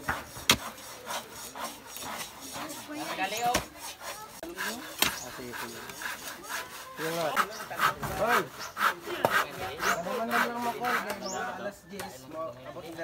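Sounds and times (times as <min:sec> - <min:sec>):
hand saw cutting timber: 0:00.0 - 0:11.4.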